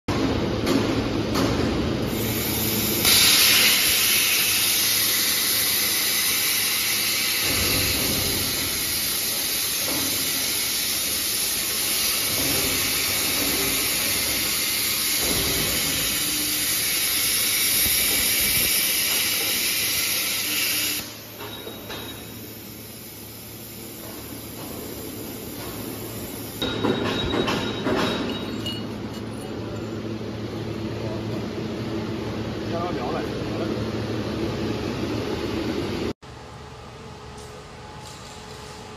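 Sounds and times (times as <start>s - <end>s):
plasma torch hissing: 2.1s - 26.8s.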